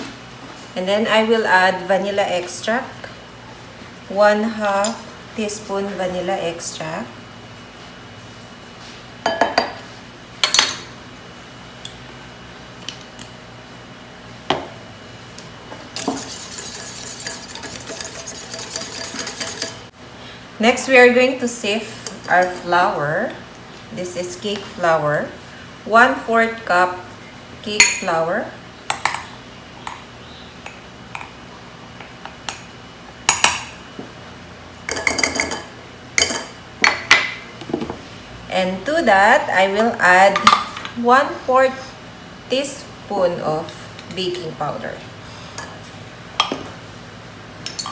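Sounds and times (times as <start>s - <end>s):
whisk beating in glass bowl: 16.0s - 19.8s.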